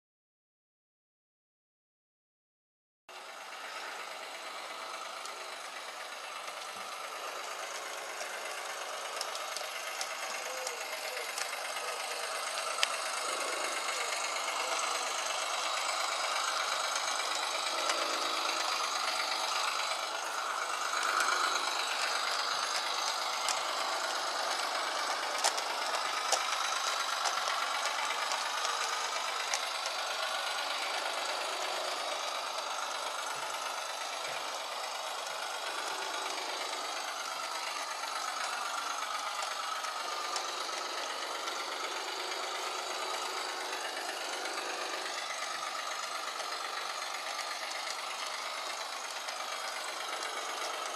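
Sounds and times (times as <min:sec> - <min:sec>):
model train motor whirring: 0:03.1 - 0:50.9
wheels rattling on track: 0:03.1 - 0:50.9
sharp clicks: 0:06.5 - 0:15.4, 0:16.1 - 0:29.7.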